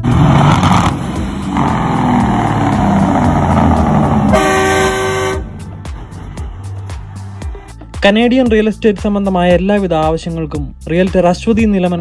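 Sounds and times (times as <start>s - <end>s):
diesel truck engine running: 0.0s - 7.9s.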